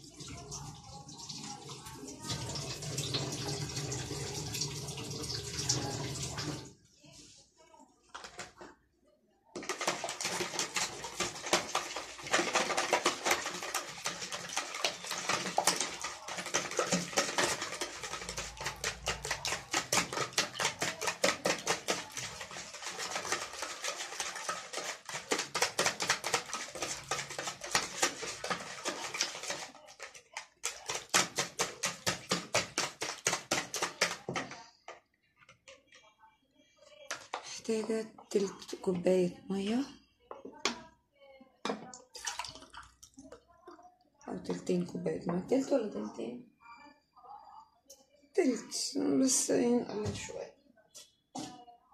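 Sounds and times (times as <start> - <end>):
whisk clicking against bowl: 9.6 - 34.6.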